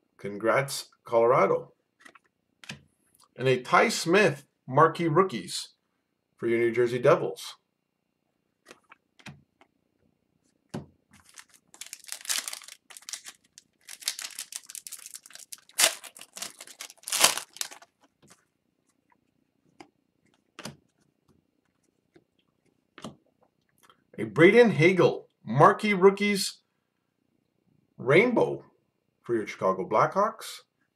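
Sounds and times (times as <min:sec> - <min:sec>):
foil wrapping crinkling: 0:11.2 - 0:18.1.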